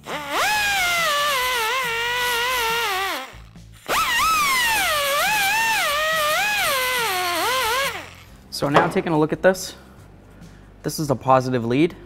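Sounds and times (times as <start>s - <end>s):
air die grinder whining: 0.0s - 9.0s.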